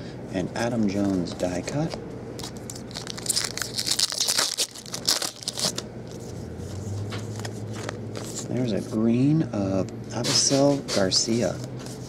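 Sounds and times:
cards rustling: 0:00.7 - 0:09.0
foil wrapper tearing and crinkling: 0:02.4 - 0:05.8.

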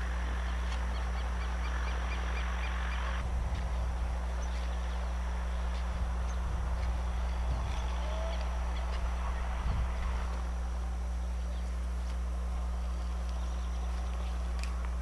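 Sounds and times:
low hum: 0:00.0 - 0:15.0
soft low bumps: 0:03.2 - 0:15.0.

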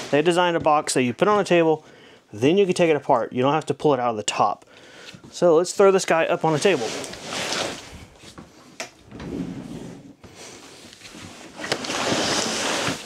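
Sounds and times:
cardboard box scraping on table: 0:06.4 - 0:08.0, 0:09.2 - 0:13.0.

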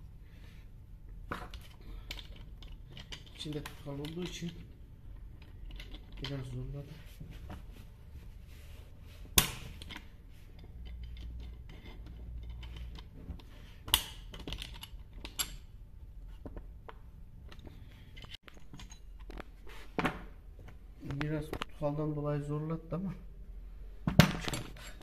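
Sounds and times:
metallic clicks and rattles: 0:01.5 - 0:06.6, 0:09.8 - 0:15.7.

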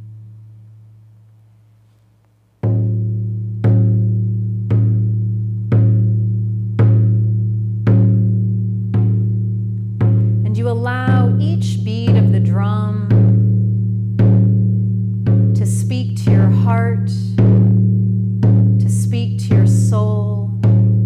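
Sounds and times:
frame drum beaten slowly: 0:02.6 - 0:21.0
wordless voice: 0:10.4 - 0:13.2, 0:15.6 - 0:17.4, 0:18.8 - 0:20.6.

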